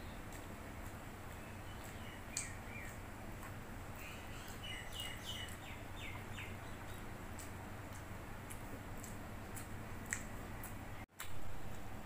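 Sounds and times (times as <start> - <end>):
low steady hum: 0.0 - 12.0
bird chirping in falling notes: 4.0 - 7.1.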